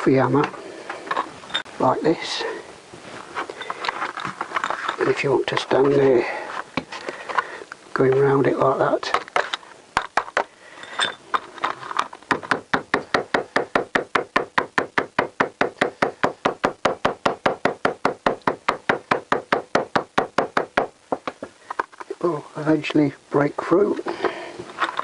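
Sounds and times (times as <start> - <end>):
small hammer tapping: 12.3 - 21.5.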